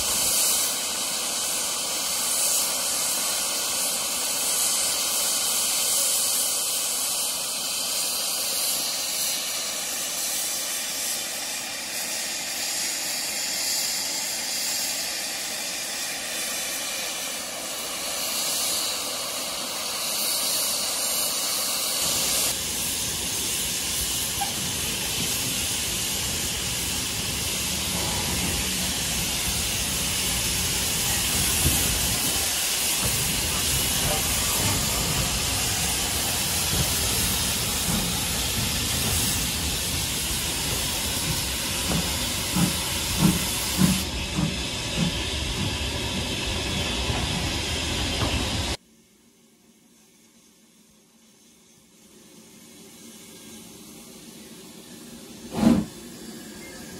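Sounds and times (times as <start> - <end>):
steam locomotive hissing: 0.0 - 48.8, 49.9 - 56.9.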